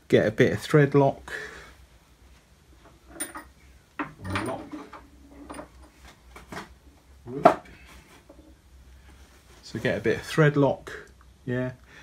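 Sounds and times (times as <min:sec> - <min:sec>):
hard objects knocking and clattering: 0:03.1 - 0:06.8.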